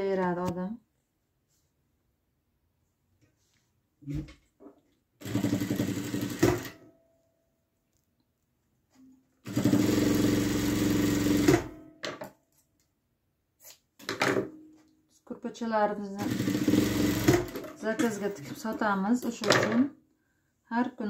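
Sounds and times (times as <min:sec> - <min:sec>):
sewing machine stitching: 0:05.2 - 0:06.8, 0:09.4 - 0:11.8, 0:16.2 - 0:18.5.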